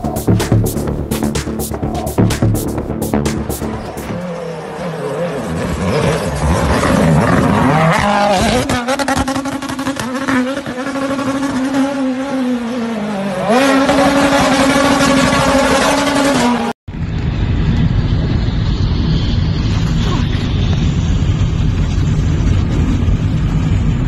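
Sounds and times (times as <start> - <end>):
rally car engine at high revs: 0.0 - 16.8.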